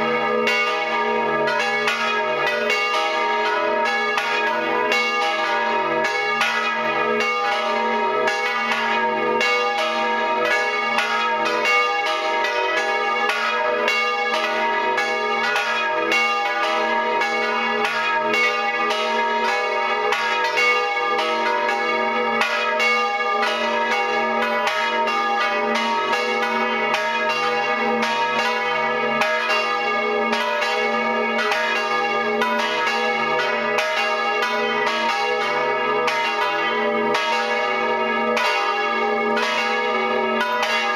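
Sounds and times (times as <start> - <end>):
church bells pealing: 0.0 - 40.9.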